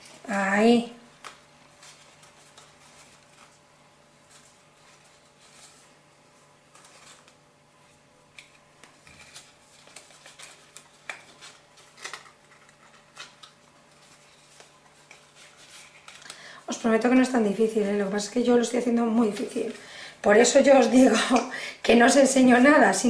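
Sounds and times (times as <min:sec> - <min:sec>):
faint steady hum: 0:00.0 - 0:23.0
paper rustling and tapping: 0:08.3 - 0:16.4.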